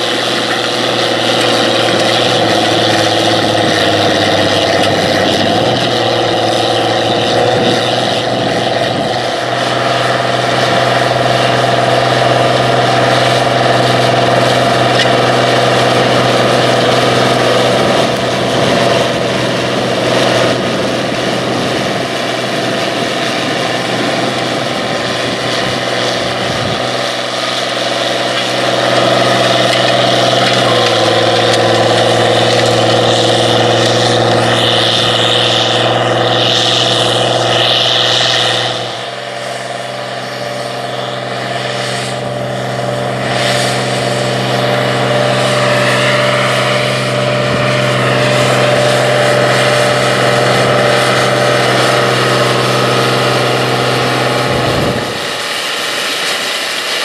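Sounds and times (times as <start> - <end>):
tractor diesel engine under load: 0.0 - 57.0.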